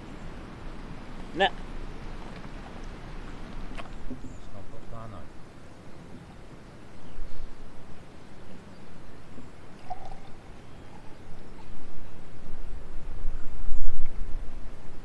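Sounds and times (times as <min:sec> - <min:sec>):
wind rumbling on microphone: 0:00.0 - 0:15.0
drink poured into glass: 0:09.8 - 0:11.7.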